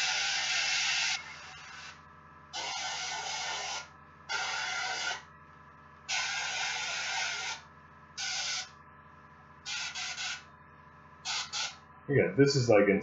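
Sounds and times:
faint low hum: 1.2s - 13.0s
airbrush spraying hissing bursts: 2.6s - 5.2s, 6.1s - 7.6s, 9.7s - 10.5s, 11.3s - 11.8s.

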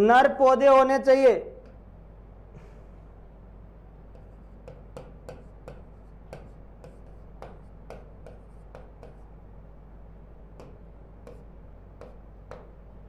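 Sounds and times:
faint steady hum: 0.0s - 13.0s
marker squeaking on whiteboard: 4.1s - 9.3s.

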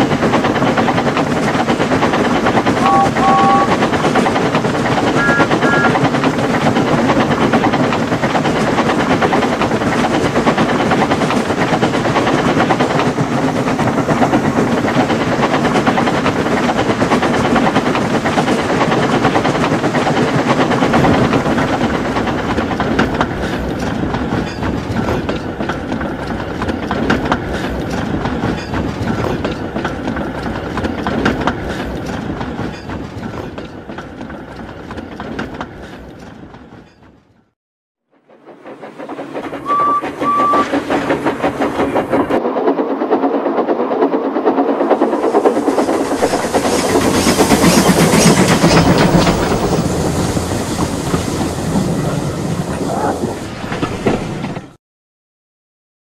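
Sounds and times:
train wheels clicking: 0.0s - 37.4s, 38.2s - 54.8s
train running on rails: 0.0s - 54.8s.

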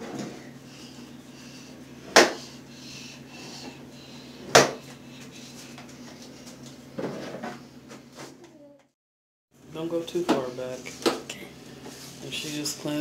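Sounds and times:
steady low hum: 0.0s - 8.3s.

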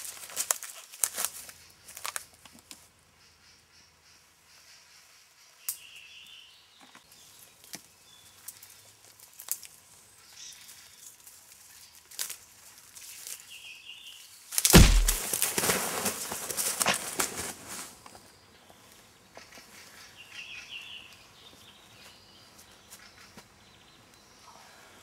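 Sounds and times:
footsteps through undergrowth: 0.0s - 2.3s, 10.6s - 13.5s, 14.5s - 18.0s
twig snaps: 14.5s - 15.5s.

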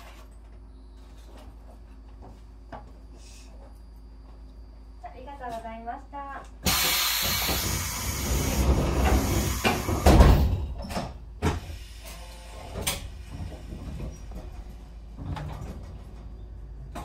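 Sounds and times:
train doors hissing air: 6.6s - 10.8s, 11.4s - 13.9s.

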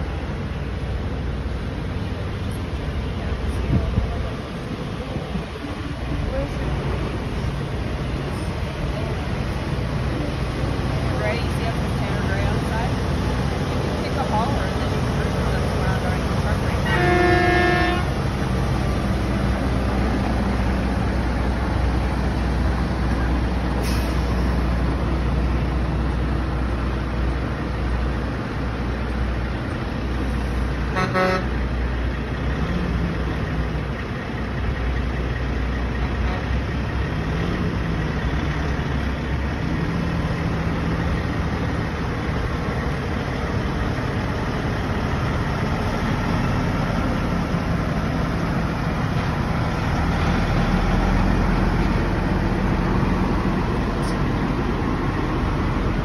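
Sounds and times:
truck engine rumble: 0.0s - 56.0s
truck horn toot: 16.8s - 18.2s, 30.9s - 31.6s.

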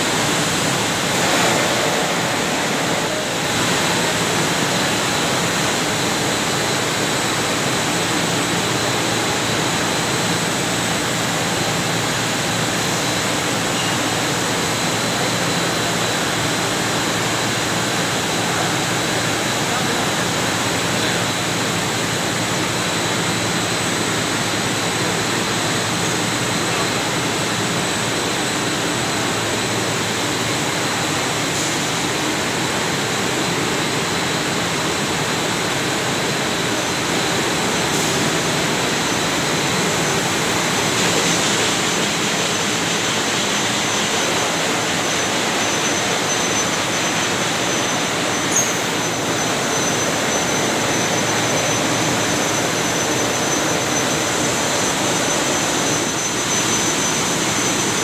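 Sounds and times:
machine rushing noise: 0.0s - 5.1s.

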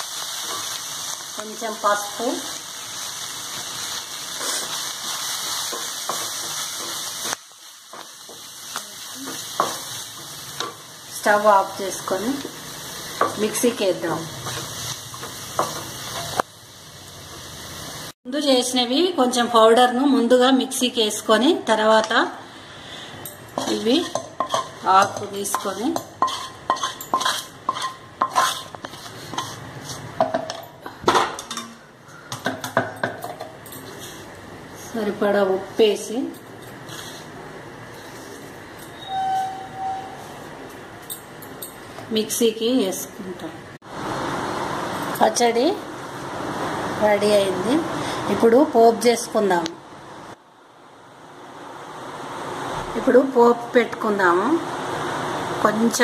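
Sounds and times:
leaves frying in oil: 0.0s - 31.0s, 33.2s - 39.2s, 41.8s - 56.0s
wooden spatula strokes: 25.5s - 30.2s, 36.8s - 38.6s.

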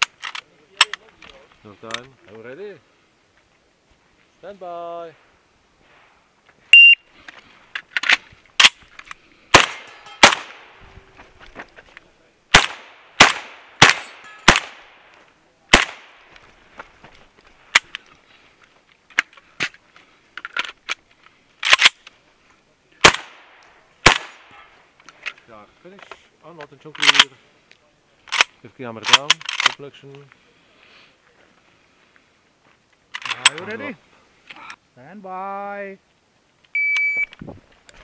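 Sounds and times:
shot timer beep: 6.8s - 7.0s, 36.8s - 37.3s
shotgun shots: 9.5s - 10.8s, 12.5s - 15.0s, 15.7s - 16.2s, 23.0s - 24.6s.

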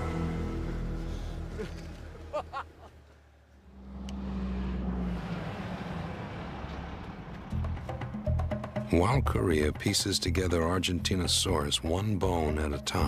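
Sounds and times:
background music: 0.0s - 2.4s, 7.4s - 13.0s
bus engine drone: 0.0s - 8.4s
street traffic: 0.0s - 8.9s.

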